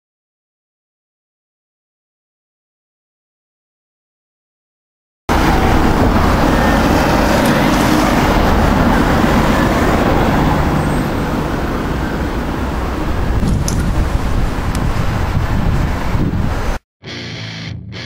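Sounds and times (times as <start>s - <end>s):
city street traffic: 5.3s - 17.2s.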